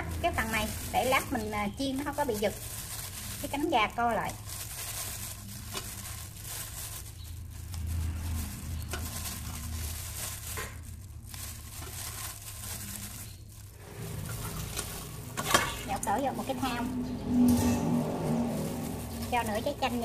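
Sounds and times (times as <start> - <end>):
pot of water bubbling: 13.6 - 20.0
steady low rumble: 13.6 - 20.0.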